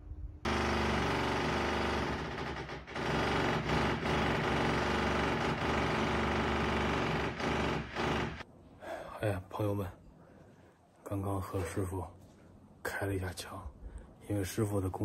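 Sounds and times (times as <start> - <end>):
demolition hammer chiselling brick: 0.5 - 8.4.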